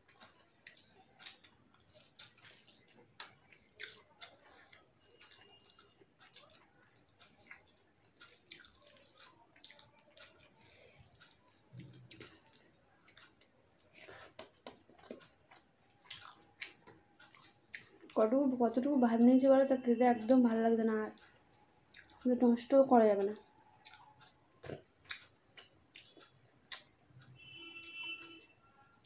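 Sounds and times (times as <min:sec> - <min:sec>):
chewing clicks and smacks: 0:00.0 - 0:18.2, 0:21.1 - 0:22.3, 0:23.2 - 0:29.0
fingers squishing food on plate: 0:00.0 - 0:18.2.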